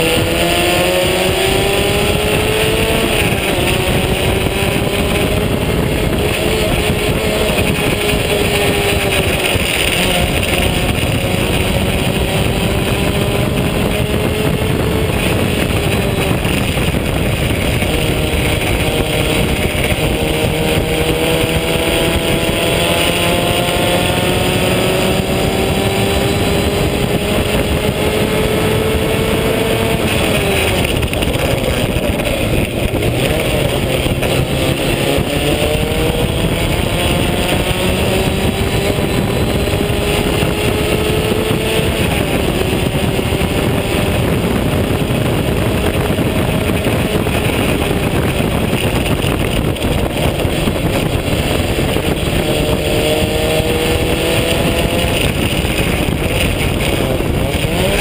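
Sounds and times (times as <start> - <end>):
race car engine at speed: 0.0 - 58.0
wind rush on microphone: 0.0 - 58.0.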